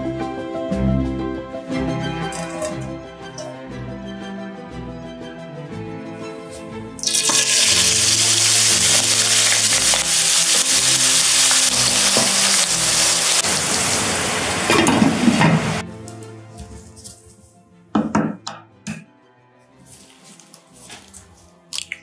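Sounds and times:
potatoes sizzling in hot oil: 7.0s - 15.8s.

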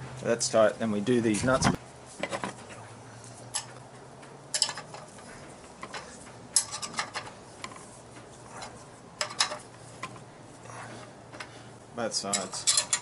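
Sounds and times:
spanner clicking on metal nut: 12.3s - 13.0s.

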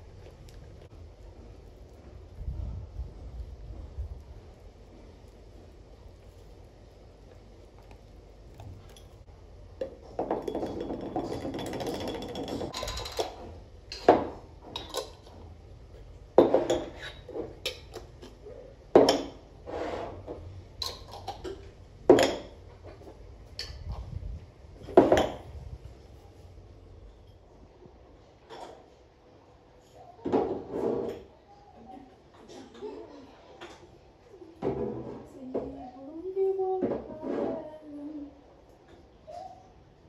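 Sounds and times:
rustling of containers: 0.0s - 18.4s.

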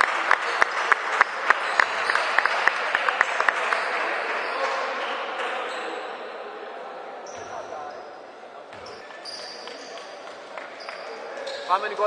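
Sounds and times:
group clapping: 0.0s - 4.4s, 9.6s - 11.2s.

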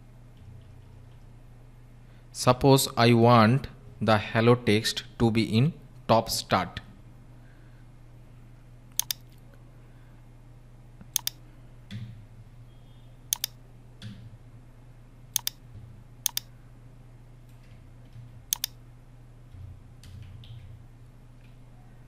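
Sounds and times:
low steady hum: 0.0s - 22.0s
mouse and keyboard clicks: 9.0s - 9.4s, 11.1s - 11.4s, 13.3s - 13.6s, 15.4s - 15.6s, 16.3s - 16.5s, 18.5s - 18.8s
soft keystrokes: 9.0s - 9.4s, 11.1s - 11.4s, 13.3s - 13.6s, 15.4s - 15.6s, 16.2s - 16.5s, 18.5s - 18.8s.

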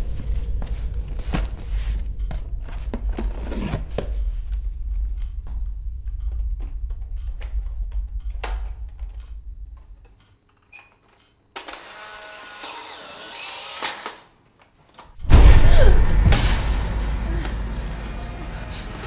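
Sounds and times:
low rumbling drone: 0.0s - 10.1s, 15.2s - 19.0s
deep boom with crash: 15.2s - 18.8s.

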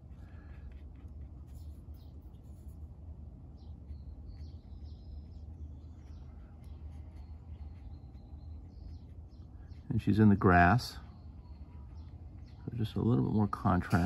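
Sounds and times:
low background hum: 0.0s - 14.0s.

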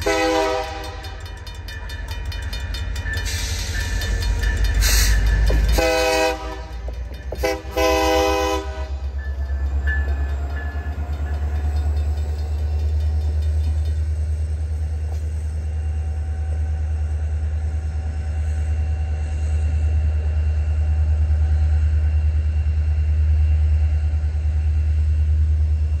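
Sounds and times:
locomotive horn blasts: 0.0s - 1.4s, 4.9s - 9.2s
locomotive rumbling past: 0.0s - 26.0s.

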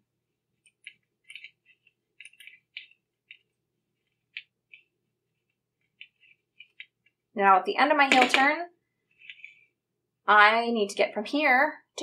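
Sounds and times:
knitting needles clicking: 0.6s - 7.2s.

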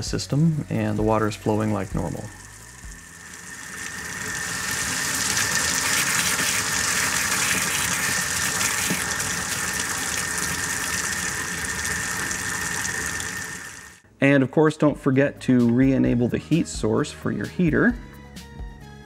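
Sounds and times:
faucet sputtering air and water: 0.0s - 14.0s.

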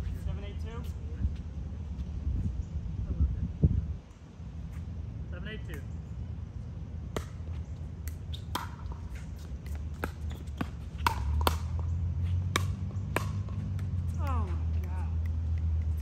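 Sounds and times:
ball bouncing on court: 7.1s - 16.0s
paddles hitting ball: 7.1s - 16.0s.

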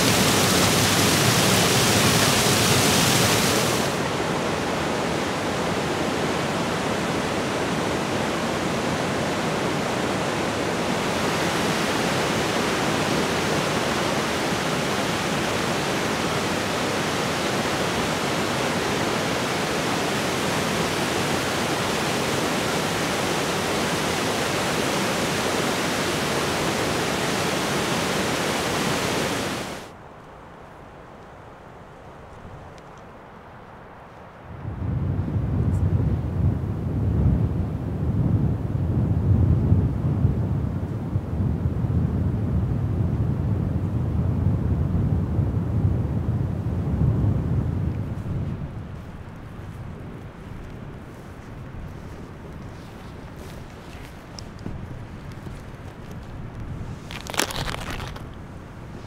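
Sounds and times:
waterfall roaring: 0.0s - 29.9s.

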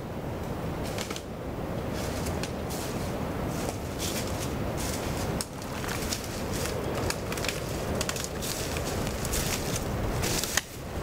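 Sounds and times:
footsteps crunching dry leaves: 1.9s - 10.9s
twigs cracking underfoot: 3.6s - 10.8s.

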